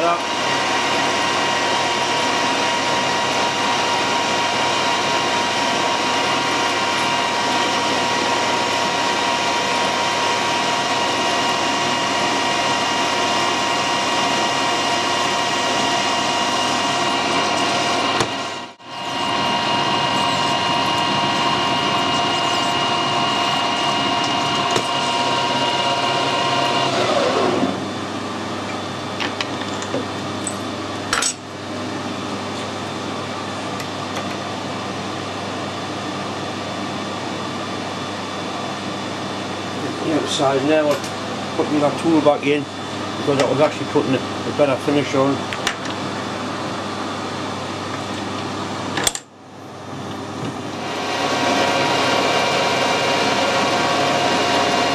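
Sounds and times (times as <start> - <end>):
lathe tool cutting metal: 0.0 - 27.8, 50.7 - 54.9
metal lathe whine: 0.0 - 54.9
steady machine hum: 0.0 - 54.9.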